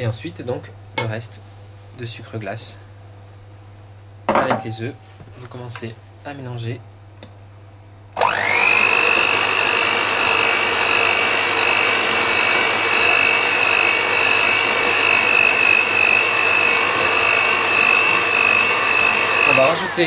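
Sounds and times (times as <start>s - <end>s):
electric hand mixer whining: 8.2s - 20.0s
beaters whisking in plastic bowl: 8.8s - 20.0s.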